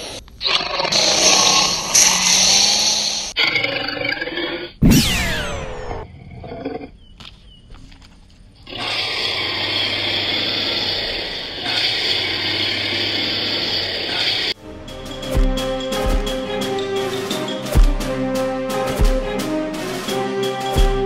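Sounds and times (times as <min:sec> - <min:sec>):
monster screech: 0:00.4 - 0:06.5, 0:08.7 - 0:14.6
rasping monster roar: 0:08.7 - 0:14.6.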